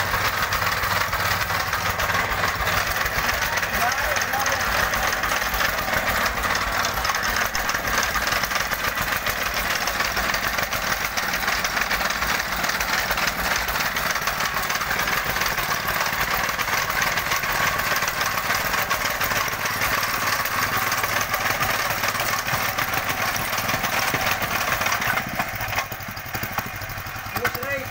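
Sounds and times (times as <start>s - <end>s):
tamping rammer pounding gravel: 0.0s - 27.9s.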